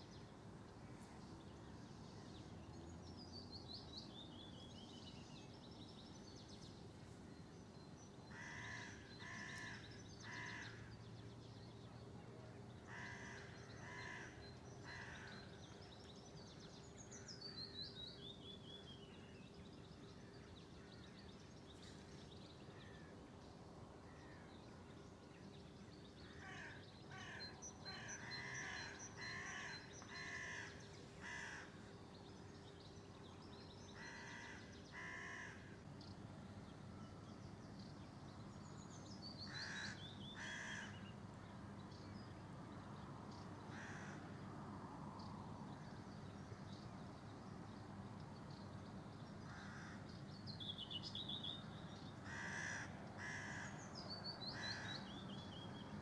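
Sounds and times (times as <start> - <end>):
crows cawing: 8.3 - 10.8, 12.9 - 15.3, 26.3 - 31.8, 34.0 - 35.7, 39.5 - 41.0, 43.7 - 44.2, 49.5 - 50.0, 52.2 - 53.8, 54.6 - 54.9.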